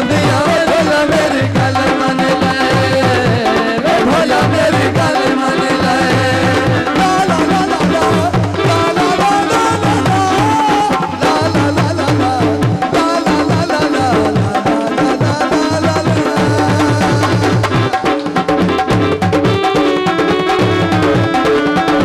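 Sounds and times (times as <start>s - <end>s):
hand drum rhythm: 0.0s - 22.0s.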